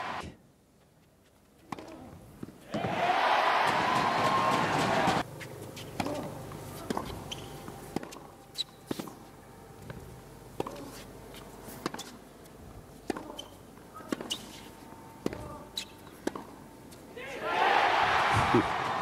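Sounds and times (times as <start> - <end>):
rackets striking tennis ball: 3.6 - 9.2, 13.1 - 16.6.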